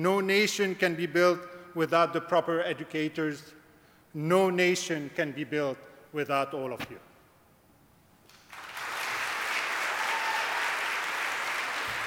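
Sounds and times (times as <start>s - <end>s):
audience applauding: 8.3s - 12.0s.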